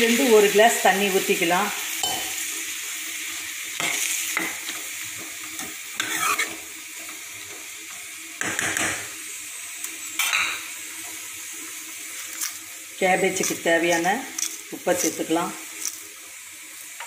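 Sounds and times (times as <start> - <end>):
cabbage sizzling in oil: 0.0 - 17.0
metal ladle scraping a pan: 5.5 - 7.2.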